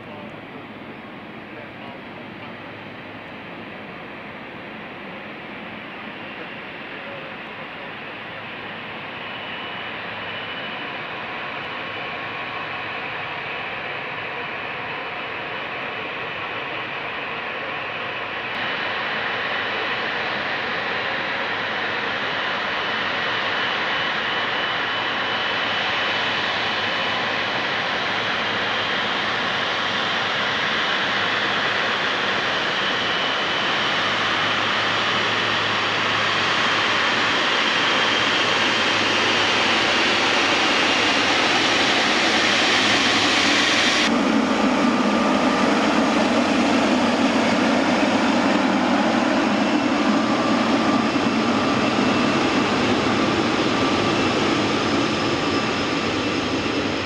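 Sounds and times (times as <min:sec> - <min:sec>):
jet engine whine: 0:00.0 - 0:57.0
jet engine rushing rumble: 0:18.6 - 0:57.0.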